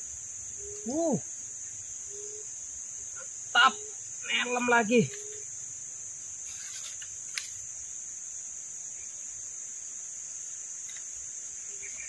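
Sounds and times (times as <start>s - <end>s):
insects chirping: 0.0s - 12.0s.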